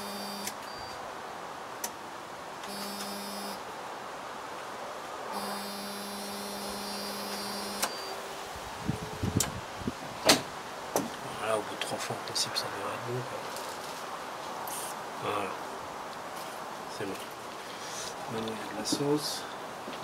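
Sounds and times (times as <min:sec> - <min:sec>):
electric fuel pump humming: 0:00.0 - 0:00.6, 0:02.6 - 0:03.6, 0:05.3 - 0:08.2.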